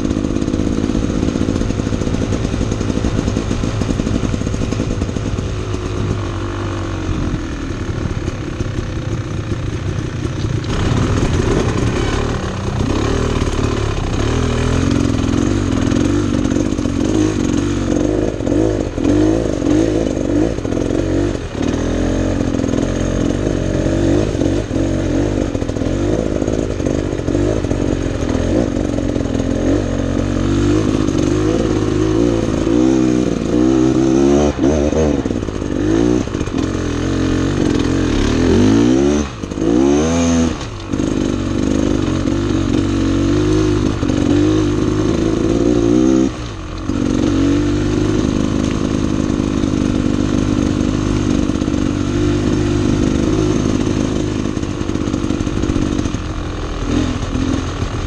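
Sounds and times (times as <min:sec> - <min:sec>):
two-stroke dirt bike engine revving: 0:00.0 - 0:58.0.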